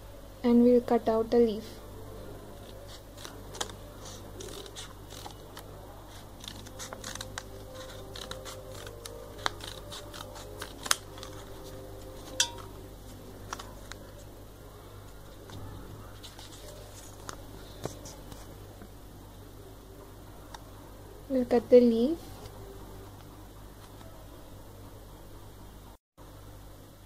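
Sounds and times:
steady low hum: 0:00.0 - 0:27.0
paper rustling: 0:02.6 - 0:12.4, 0:13.0 - 0:14.3, 0:15.3 - 0:18.6
scissors cutting paper: 0:02.6 - 0:12.7, 0:13.4 - 0:14.2.

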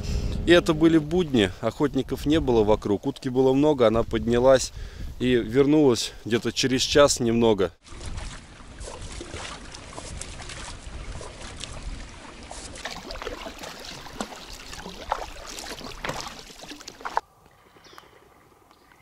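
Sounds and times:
water sloshing and splashing: 0:07.8 - 0:17.2.

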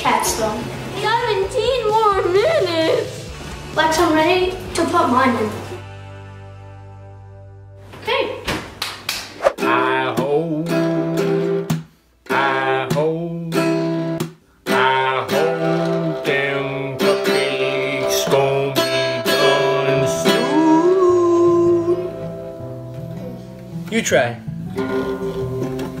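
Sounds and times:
man singing: 0:09.6 - 0:11.3, 0:12.2 - 0:13.8, 0:14.6 - 0:22.3.

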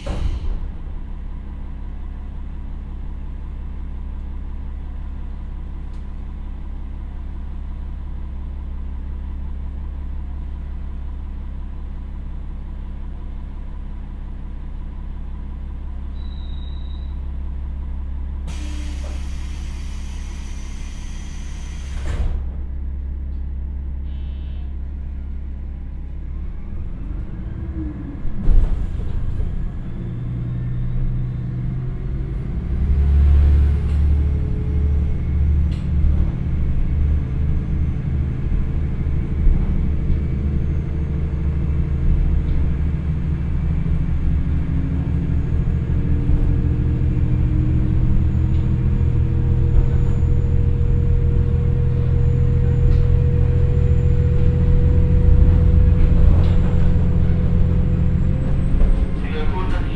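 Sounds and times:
thump: 0:00.0 - 0:00.7
diesel railcar engine idling: 0:00.0 - 0:59.9.

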